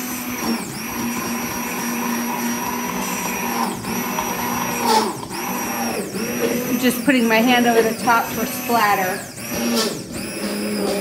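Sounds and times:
stick blender motor whine: 0.0 - 11.0.

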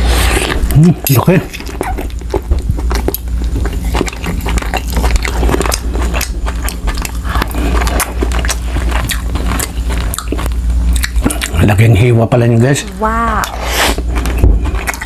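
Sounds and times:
steady low hum: 0.0 - 15.0
wet mouth clicks and lip smacks: 8.4 - 11.6.

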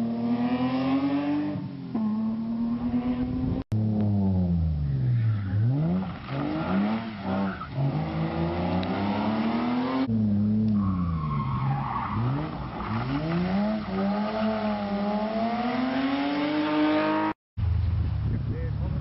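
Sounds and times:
rally car engines revving: 0.0 - 17.4
tyres skidding: 0.7 - 18.2.

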